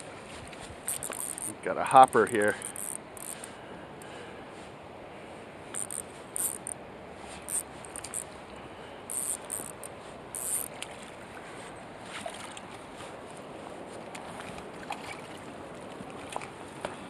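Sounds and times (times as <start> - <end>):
river flowing: 0.0 - 16.9
fishing reel clicking: 0.9 - 1.6, 2.5 - 3.5, 5.7 - 6.8, 7.5 - 8.3, 9.1 - 10.7.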